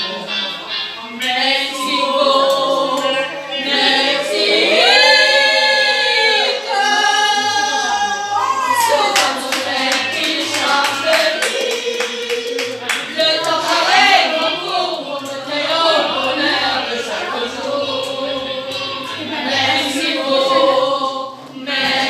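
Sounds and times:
women singing together: 1.2s - 22.0s
rhythmic hand-clapping: 8.8s - 16.8s.

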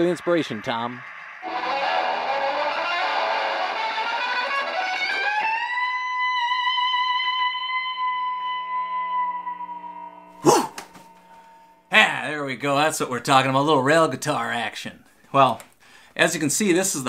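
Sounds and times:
electric guitar solo: 1.4s - 11.8s.

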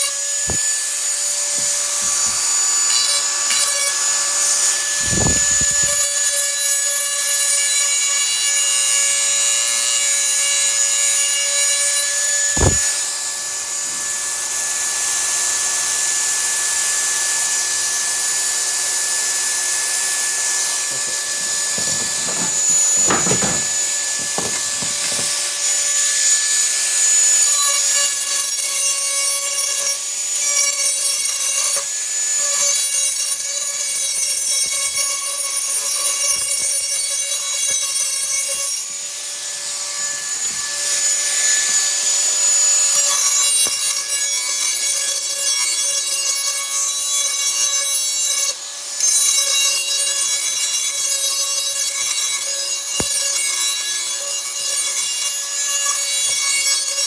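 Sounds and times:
power grinder sharpening steel: 0.0s - 57.0s
knocks: 21.7s - 25.5s.

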